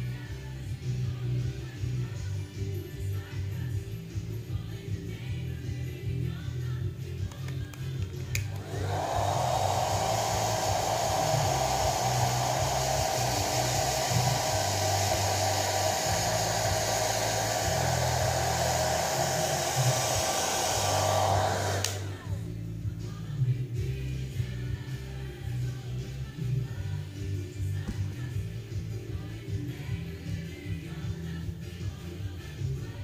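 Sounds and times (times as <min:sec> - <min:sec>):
hair dryer switch click: 0:07.3 - 0:11.7, 0:19.2 - 0:22.2
hair dryer whine with rushing air: 0:08.3 - 0:22.4.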